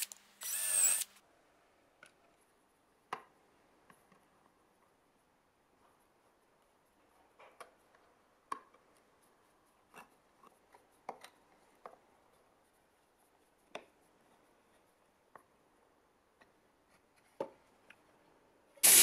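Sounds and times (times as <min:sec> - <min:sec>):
screwdriver clicks and scrapes: 0:00.0 - 0:01.2.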